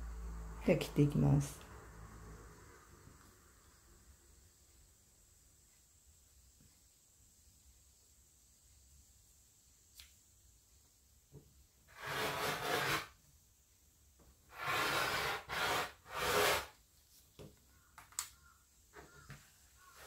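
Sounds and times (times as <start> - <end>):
rotary cutter rasping through fabric: 11.9 - 13.2, 14.5 - 16.7.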